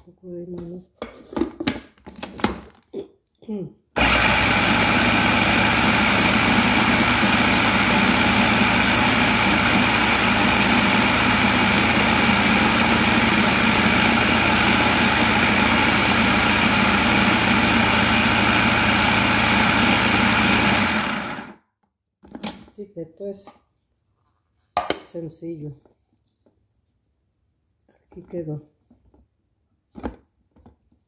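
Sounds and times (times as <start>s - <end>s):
food processor motor humming: 4.0s - 21.6s.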